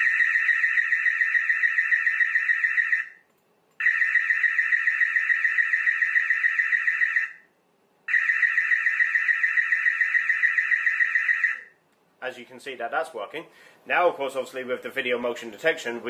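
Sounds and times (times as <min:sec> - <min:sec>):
warbling siren: 0:00.0 - 0:03.2, 0:03.8 - 0:07.5, 0:08.1 - 0:11.8.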